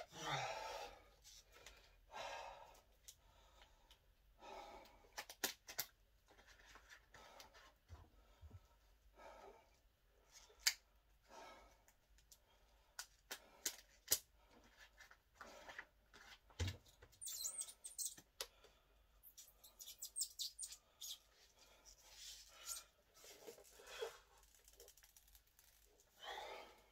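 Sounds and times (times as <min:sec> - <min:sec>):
short high squeaks: 0:17.2 - 0:18.2, 0:19.3 - 0:21.2.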